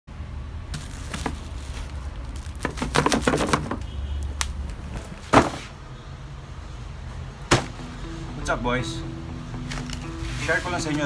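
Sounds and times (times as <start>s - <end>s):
bubble wrap crinkling and crackling: 0.7s - 4.8s.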